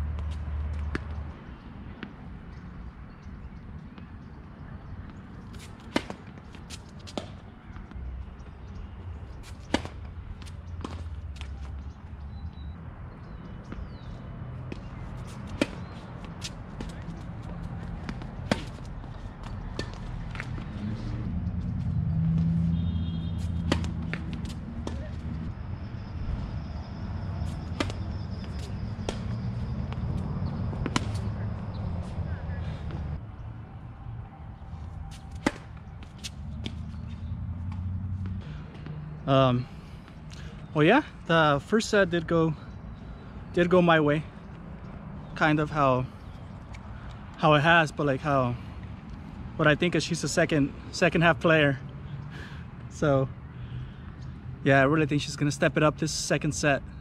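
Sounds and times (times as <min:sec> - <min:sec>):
tennis ball bouncing on court: 0:05.0 - 0:08.0, 0:09.6 - 0:11.8, 0:14.7 - 0:20.8, 0:21.5 - 0:25.4, 0:27.4 - 0:32.2, 0:35.2 - 0:39.0
racket striking ball: 0:05.6 - 0:07.4, 0:09.6 - 0:10.1, 0:14.7 - 0:17.0, 0:18.0 - 0:18.9, 0:19.7 - 0:20.7, 0:23.3 - 0:25.3, 0:27.4 - 0:31.8, 0:35.1 - 0:37.1.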